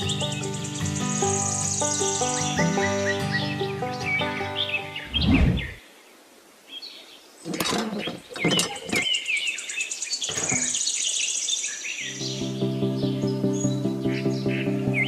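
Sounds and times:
background music: 0.0s - 5.3s, 12.2s - 15.0s
small birds chirping: 0.0s - 15.0s.

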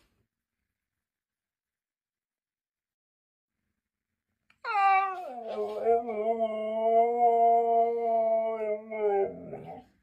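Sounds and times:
dog howling: 4.7s - 9.9s.

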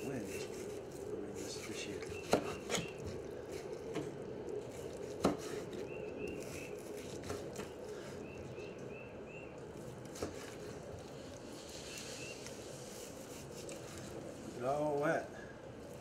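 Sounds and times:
knife slicing meat: 0.0s - 7.8s, 10.0s - 11.1s.

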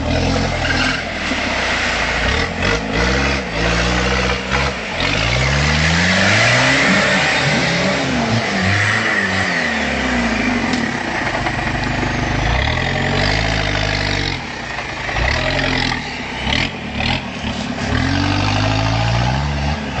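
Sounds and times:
engine revving: 0.0s - 20.0s.

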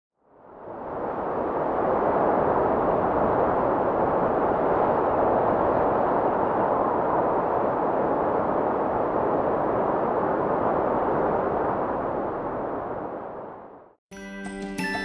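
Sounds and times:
steady rushing noise: 0.4s - 13.9s.

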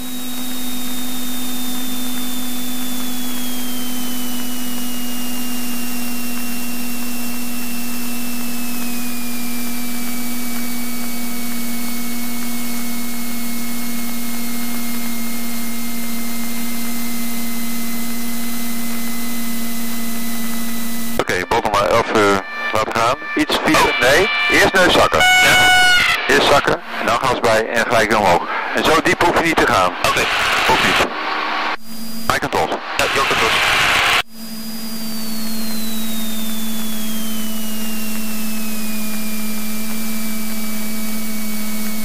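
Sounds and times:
aircraft engine whine: 0.0s - 42.0s
intercom hiss: 21.2s - 34.2s.

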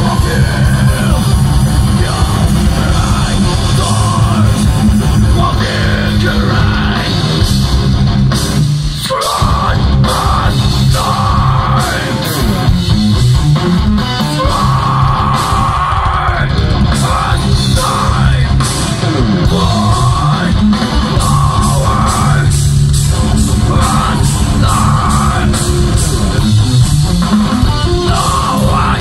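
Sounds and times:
distorted electric guitar: 0.0s - 29.0s
drums with sharp hits: 0.0s - 29.0s
heavy rock band playing: 0.0s - 29.0s.

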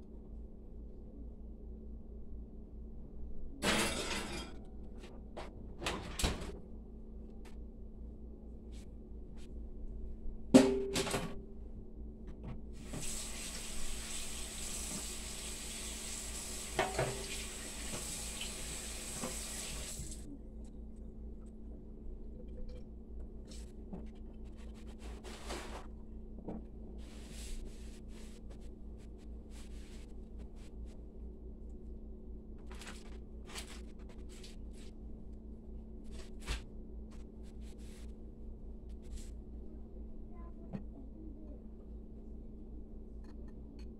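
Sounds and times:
steady low hum: 0.0s - 13.0s, 19.9s - 43.9s
faucet running into sink: 12.9s - 20.1s.

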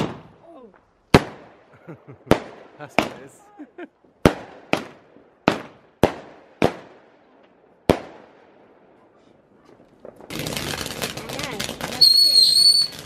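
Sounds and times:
firework bangs with echo: 0.0s - 0.4s, 1.1s - 3.4s, 4.2s - 8.9s, 9.6s - 13.0s
fountain firework crackling hiss: 9.8s - 13.0s.

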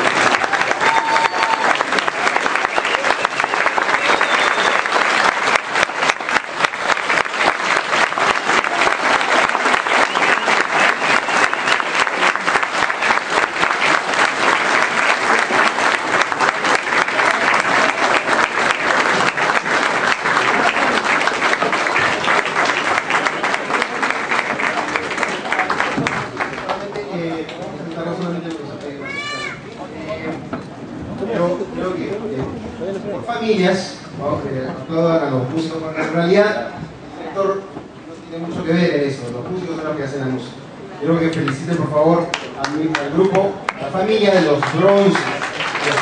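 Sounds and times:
audience applauding: 0.0s - 29.7s, 42.2s - 46.0s.

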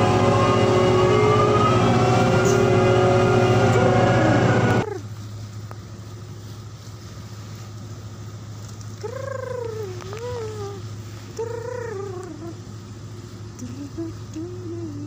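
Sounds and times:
wavering pitched squeals: 0.0s - 4.8s
ship engine humming: 0.0s - 15.0s.

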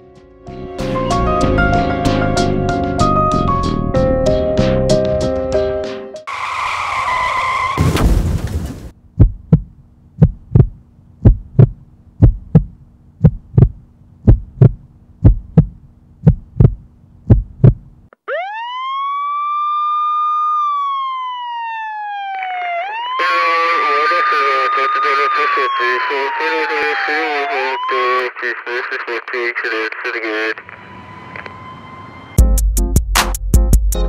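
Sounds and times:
low steady hum: 9.0s - 18.1s
heartbeat thudding: 9.1s - 18.0s.

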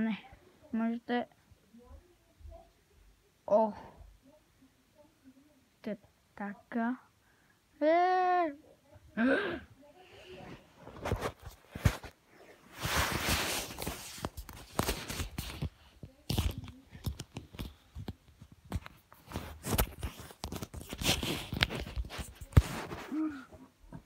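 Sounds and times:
rubbing and rustling on microphone: 10.1s - 24.0s.

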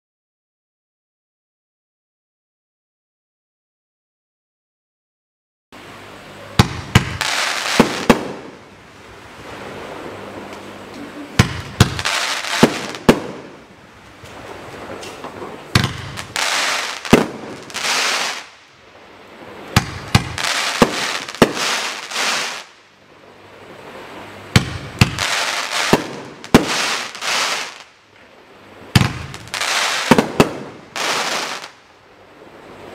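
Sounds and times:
firework sharp reports: 6.5s - 8.7s, 11.3s - 18.6s, 19.4s - 22.8s, 23.9s - 27.9s, 28.9s - 31.8s
firework crackle: 6.6s - 8.7s, 11.4s - 18.8s, 19.6s - 22.9s, 24.0s - 28.0s, 28.9s - 31.8s.

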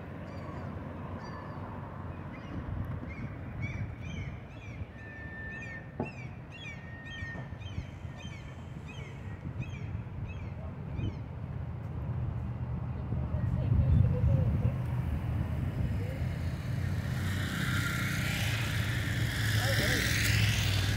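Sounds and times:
low outdoor rumble: 7.6s - 20.9s.

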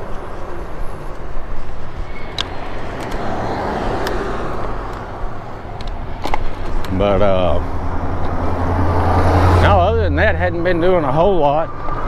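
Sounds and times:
car passing: 0.0s - 12.0s
road rumble: 0.0s - 12.0s
sharp clicks: 2.3s - 3.3s.

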